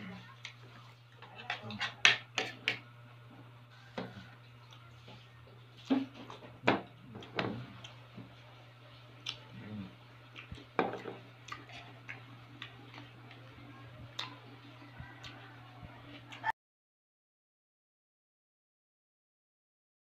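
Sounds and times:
steady low hum: 0.0s - 16.5s.

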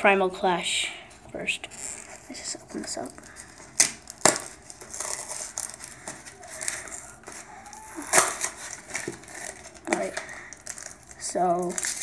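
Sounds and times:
foil wrapper tearing and crinkling: 1.7s - 12.0s.

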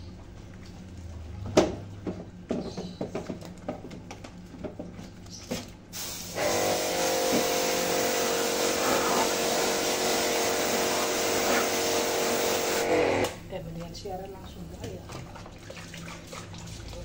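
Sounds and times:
water jet hissing: 5.9s - 13.4s
pressure washer motor humming: 6.0s - 13.4s.

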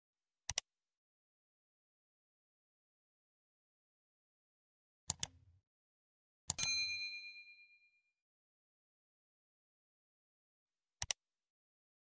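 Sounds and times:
mouse clicks: 0.5s - 0.7s, 5.1s - 5.4s, 11.0s - 11.2s
notification bell ding: 6.6s - 8.0s.

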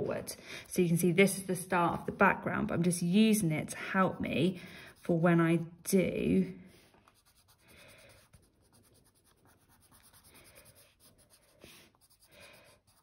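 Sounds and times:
pencil shading on paper: 4.8s - 5.4s, 7.0s - 13.0s.

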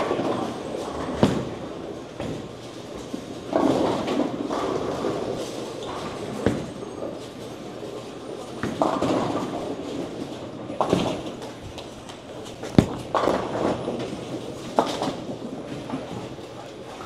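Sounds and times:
bowling balls rolling: 0.0s - 17.0s
bowling pins crashing: 0.0s - 17.0s.

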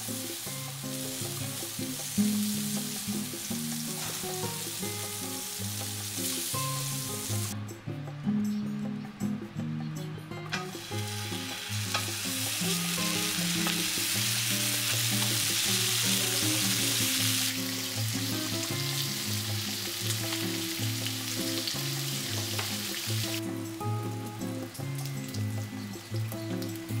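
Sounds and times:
food sizzling in pans: 0.0s - 7.6s, 10.4s - 27.0s
background music: 0.0s - 27.0s.

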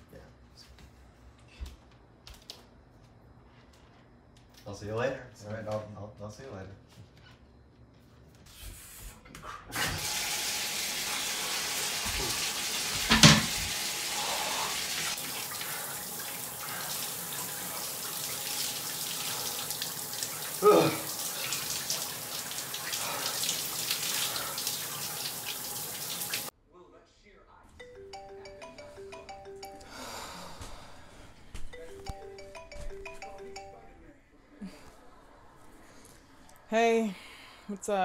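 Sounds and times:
shower spray on tiled floor: 9.8s - 26.5s.

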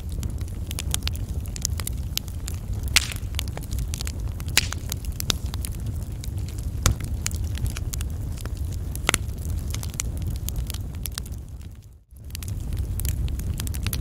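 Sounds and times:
steady low rumble: 0.0s - 11.6s
wood fire crackling and popping: 0.0s - 14.0s.

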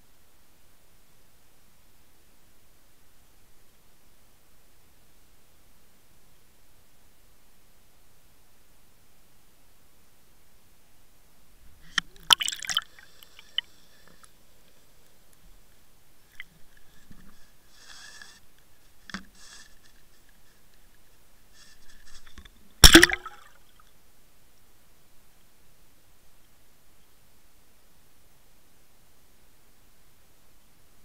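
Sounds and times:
water gurgling and splashing: 12.1s - 13.6s, 22.8s - 23.6s.

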